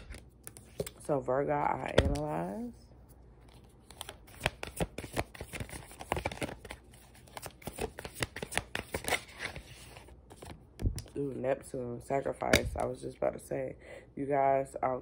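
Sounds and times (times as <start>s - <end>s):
cards being shuffled: 3.4s - 11.1s.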